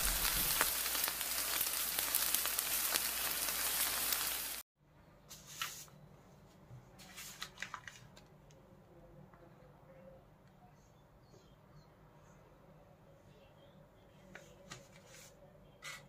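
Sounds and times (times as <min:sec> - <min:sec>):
food sizzling in a pan: 0:00.0 - 0:04.6
paper rustling: 0:07.0 - 0:08.3.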